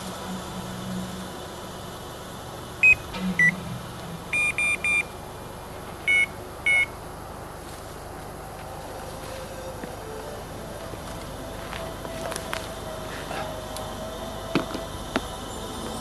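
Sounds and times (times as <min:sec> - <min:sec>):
bite alarm beeps: 0:02.8 - 0:03.6, 0:04.3 - 0:05.1, 0:06.1 - 0:06.9.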